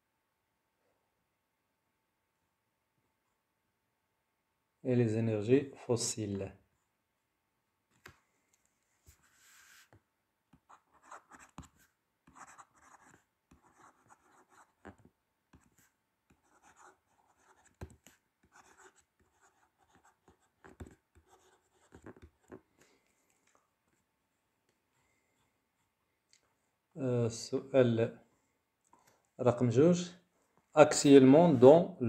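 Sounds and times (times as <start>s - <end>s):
pen scratching on paper: 9.1s - 22.6s.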